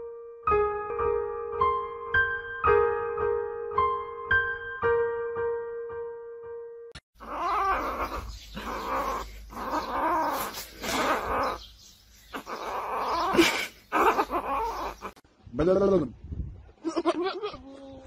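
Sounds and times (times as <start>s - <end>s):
soft piano music: 0.0s - 7.0s.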